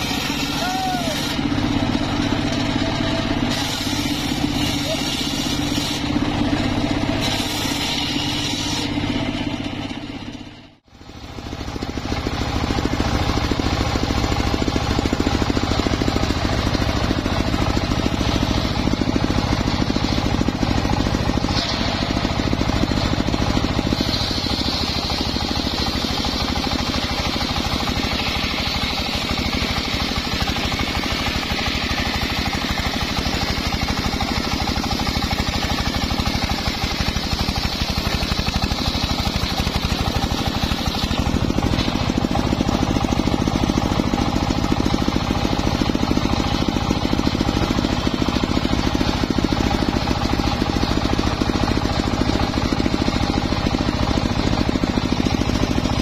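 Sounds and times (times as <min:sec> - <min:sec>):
engine pulsing: 0:00.0 - 0:56.0
saw blade whining as it cuts: 0:00.0 - 0:56.0.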